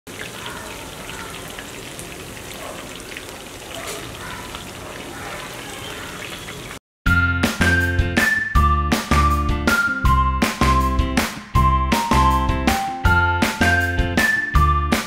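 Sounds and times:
chicken deep-frying in hot oil: 0:00.1 - 0:06.8.

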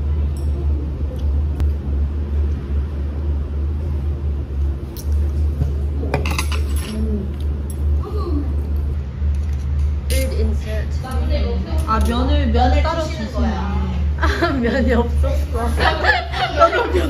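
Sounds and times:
steady low hum: 0:00.0 - 0:17.0
tableware clinking: 0:06.1 - 0:07.9.

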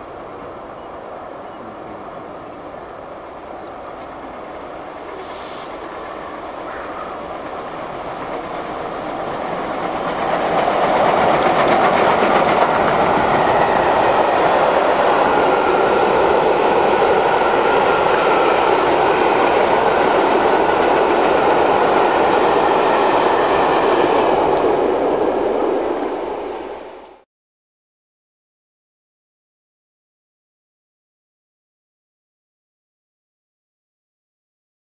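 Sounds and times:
steam locomotive passing: 0:00.0 - 0:27.2
clickety-clack of wheels on rails: 0:01.7 - 0:26.2.

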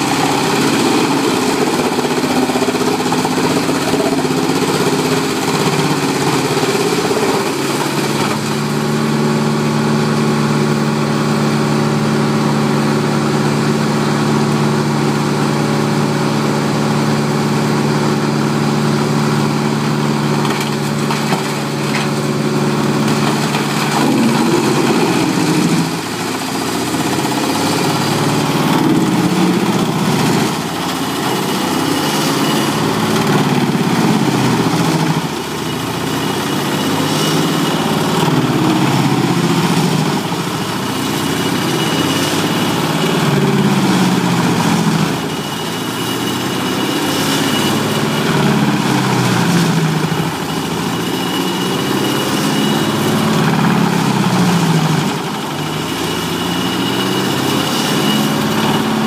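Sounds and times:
wood chipper engine running: 0:00.0 - 0:59.0.

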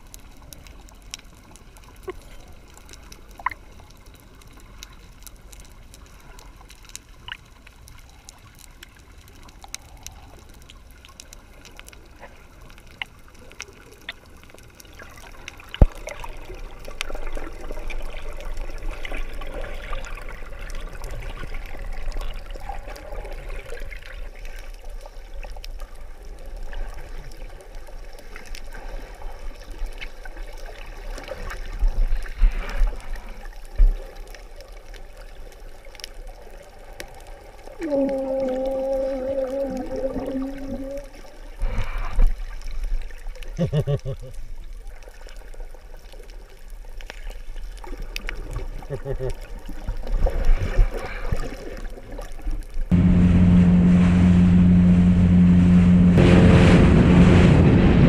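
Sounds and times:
churning water with low rumble: 0:00.0 - 0:58.0
muffled underwater water noise: 0:00.0 - 0:58.0
faint clicks: 0:00.1 - 0:12.0.

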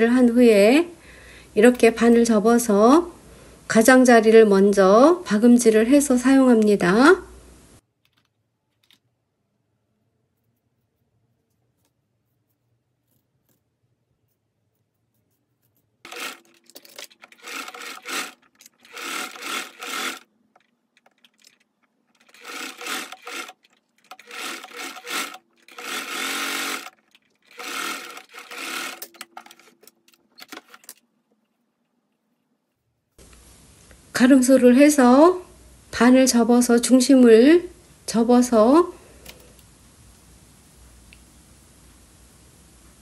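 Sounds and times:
electric sewing machine stitching: 0:16.1 - 0:20.3, 0:22.2 - 0:30.9.

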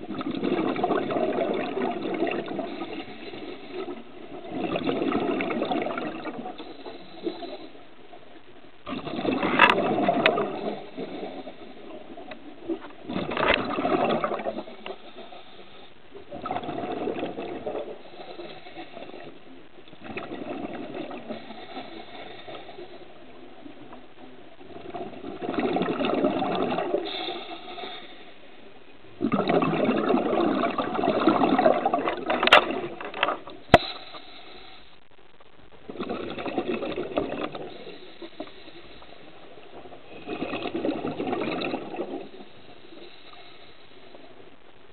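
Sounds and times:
exhaled bubbles underwater: 0:00.0 - 0:07.8, 0:08.8 - 0:28.2, 0:29.0 - 0:34.4, 0:35.8 - 0:44.5
diver inhaling through regulator: 0:02.6 - 0:04.1, 0:06.5 - 0:07.8, 0:17.9 - 0:19.4, 0:21.2 - 0:23.1, 0:26.9 - 0:28.5, 0:33.7 - 0:35.0, 0:37.6 - 0:39.4, 0:42.0 - 0:44.2.

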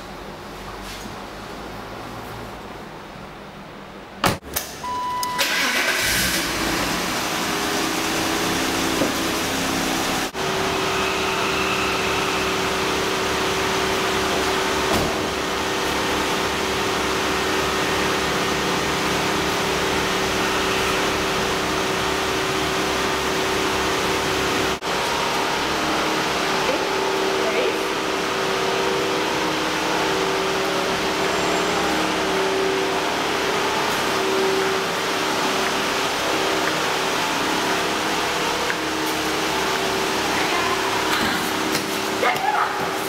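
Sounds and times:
car engine starting and idling: 0:02.7 - 0:43.0
short beep: 0:04.8 - 0:05.5.

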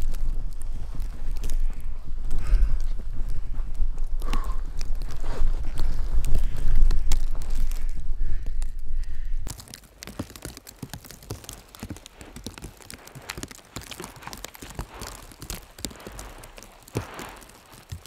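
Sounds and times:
low rumble on microphone: 0:00.0 - 0:09.5
footsteps crunching through snow: 0:09.5 - 0:18.0.

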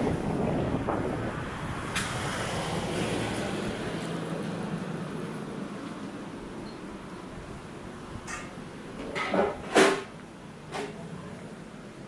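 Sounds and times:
wind noise on microphone: 0:00.0 - 0:04.2
vehicle passing: 0:00.0 - 0:06.5.

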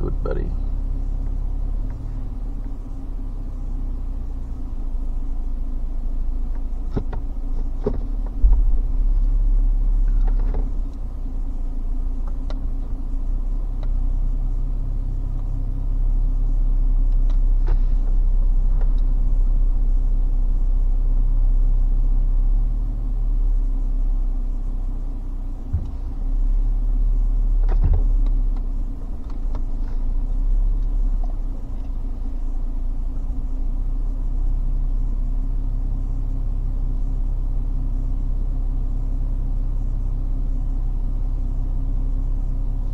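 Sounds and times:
car engine and tyre rumble: 0:00.0 - 0:42.9
knocks and rattles over bumps: 0:06.8 - 0:09.0.

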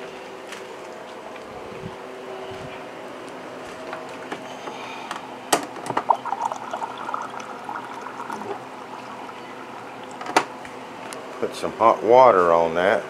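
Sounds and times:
water pouring into container: 0:06.0 - 0:10.2.

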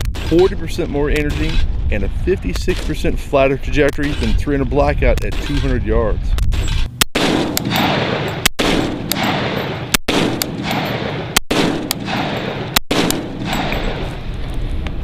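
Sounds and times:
rifle shots echoing: 0:06.5 - 0:14.3.

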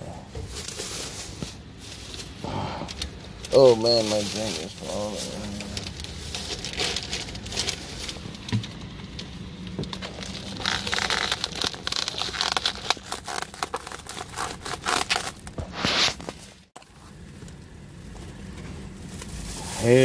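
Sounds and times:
plastic cling wrap crinkling: 0:00.4 - 0:17.7.

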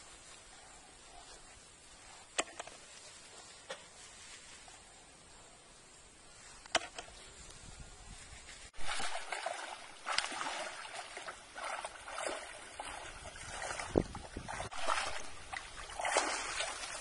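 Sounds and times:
faint hiss: 0:00.0 - 0:08.8.

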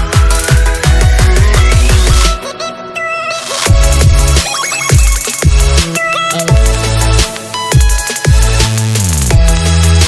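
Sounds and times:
heavy bass kick drums: 0:03.7 - 0:10.0.

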